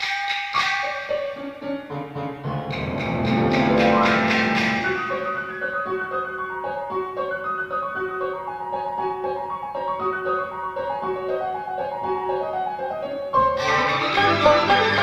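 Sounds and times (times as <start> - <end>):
orchestral accompaniment: 2.3 - 7.3
piano playing short detached notes: 2.4 - 7.0.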